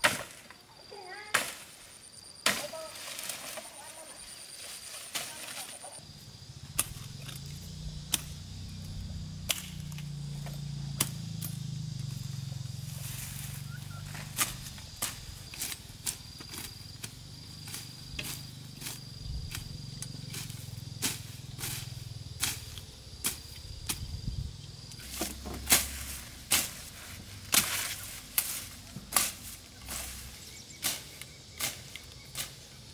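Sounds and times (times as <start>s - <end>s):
sickle cutting brush stems: 1.2s - 6.1s, 6.7s - 24.2s, 24.8s - 32.9s
steady low hum: 6.0s - 22.8s.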